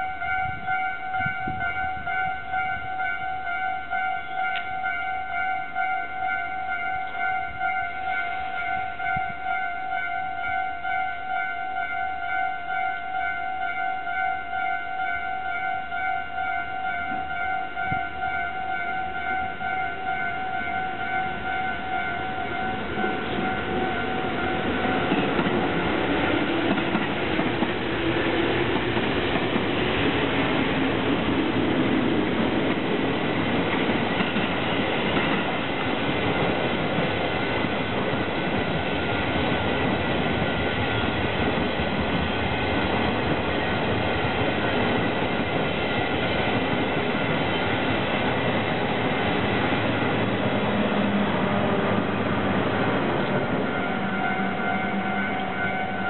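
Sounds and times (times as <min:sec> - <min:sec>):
level-crossing warning bell: 0:00.0 - 0:31.1, 0:44.4 - 0:56.0
train wheels clicking over rail joints: 0:22.6 - 0:53.6.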